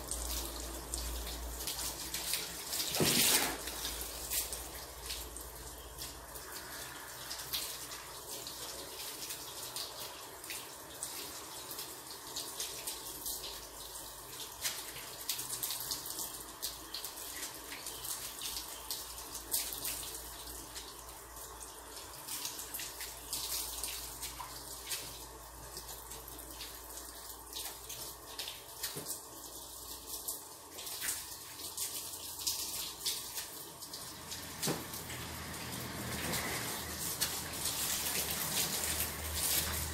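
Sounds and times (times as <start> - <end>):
crackles of spray: 0.0 - 8.4, 34.2 - 39.9
water running and splashing: 0.0 - 39.9.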